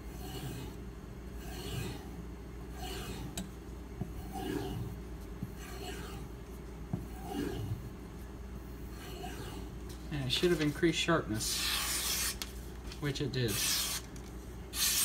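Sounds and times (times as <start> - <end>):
knife rasping on strop: 0.1 - 0.8, 1.4 - 3.5, 4.1 - 6.3.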